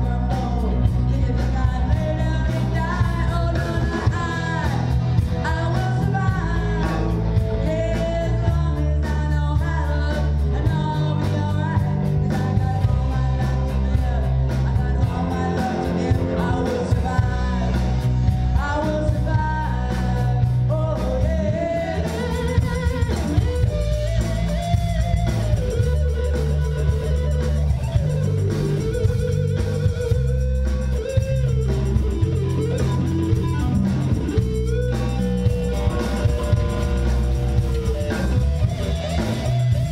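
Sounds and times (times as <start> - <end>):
woman singing: 0.0 - 27.3
bass guitar: 0.0 - 39.9
drum kit: 0.0 - 39.9
electric guitar: 0.0 - 39.9.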